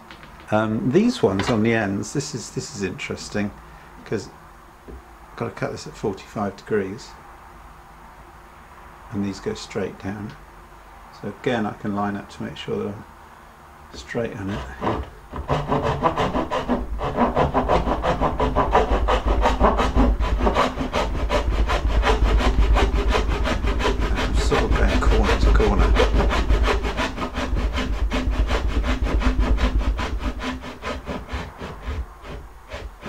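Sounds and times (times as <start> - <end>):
hand saw cutting wood: 14.2 - 33.0.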